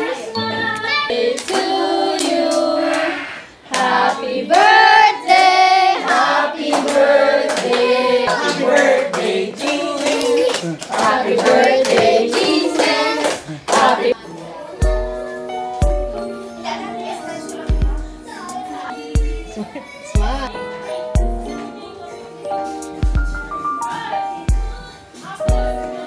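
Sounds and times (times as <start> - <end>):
group singing: 0.0 - 14.3
hands clapping: 6.1 - 14.0.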